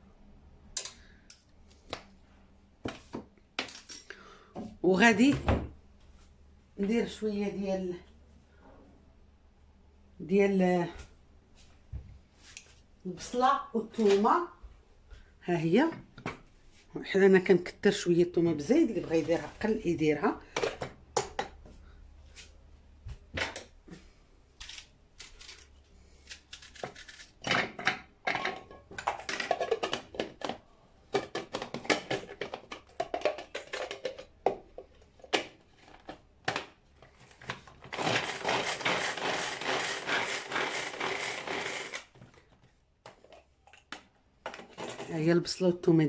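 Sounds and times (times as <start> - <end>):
pull-cord chopper whirring: 37.9 - 42.1.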